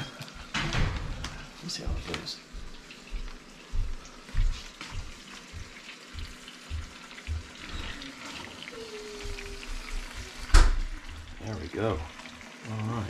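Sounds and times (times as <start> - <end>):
fish sizzling in frying pan: 2.7 - 13.0.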